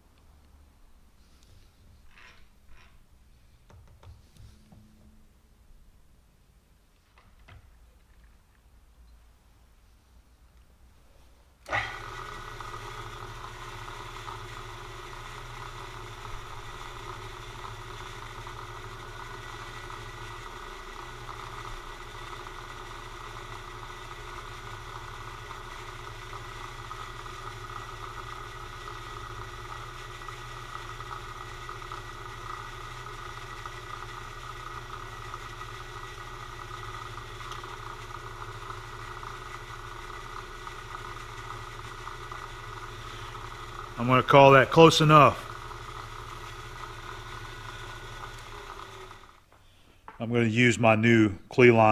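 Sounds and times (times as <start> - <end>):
milling machine spindle whine: 11.7 - 49.4.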